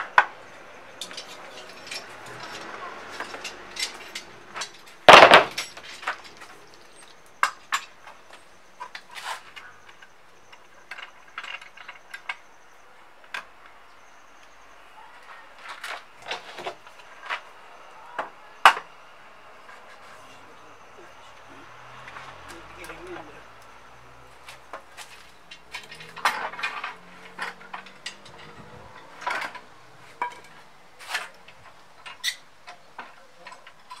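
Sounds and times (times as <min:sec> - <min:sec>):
tools and wood knocking: 0:01.0 - 0:12.5, 0:24.4 - 0:34.0.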